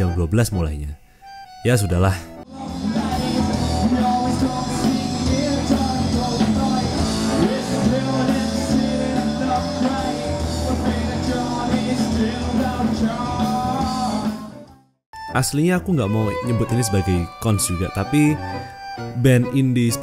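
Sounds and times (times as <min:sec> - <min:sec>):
person singing: 0:02.5 - 0:14.6
rock band playing: 0:02.5 - 0:14.7.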